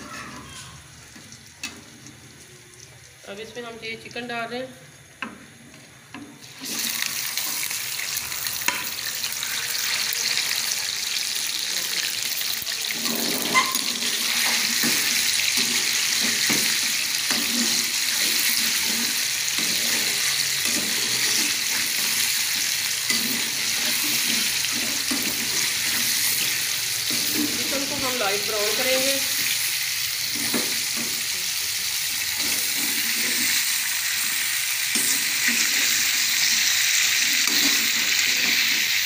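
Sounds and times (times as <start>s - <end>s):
chicken sizzling in hot oil: 5.3s - 39.0s
metal spoon scraping a pan: 12.9s - 29.6s, 32.4s - 33.8s, 34.9s - 39.0s.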